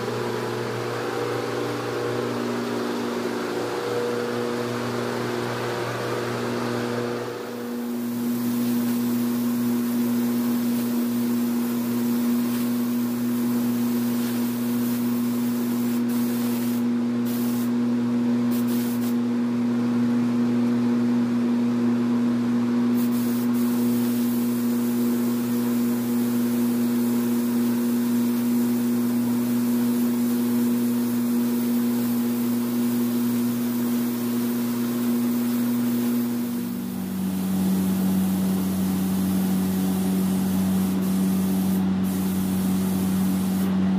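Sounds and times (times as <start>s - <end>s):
machine hum: 0.0s - 20.3s, 22.9s - 43.9s
spray gun air hiss: 7.6s - 17.8s, 18.5s - 19.2s, 23.0s - 43.8s.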